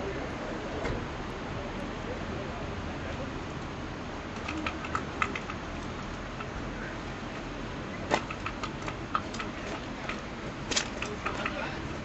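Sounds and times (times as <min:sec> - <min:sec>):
sharp clicks and taps: 0:04.4 - 0:06.6, 0:08.1 - 0:11.6.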